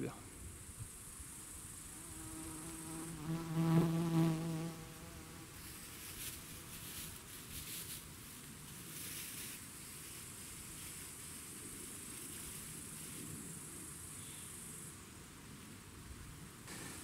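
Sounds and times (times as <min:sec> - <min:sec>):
flying insect buzzing: 0:01.3 - 0:06.9.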